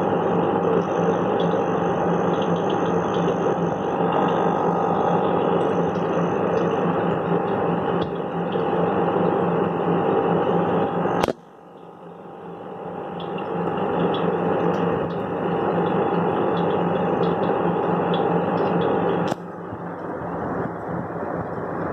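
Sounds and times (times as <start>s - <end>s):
aquarium air pump humming: 0.0s - 21.9s
sharp click: 11.2s - 11.5s.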